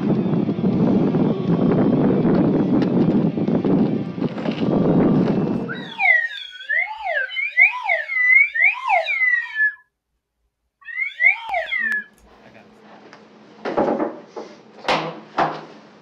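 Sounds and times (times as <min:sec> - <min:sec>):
wind rumbling on microphone: 0:00.0 - 0:06.0
slide whistle swooping: 0:05.7 - 0:09.8, 0:10.8 - 0:12.2.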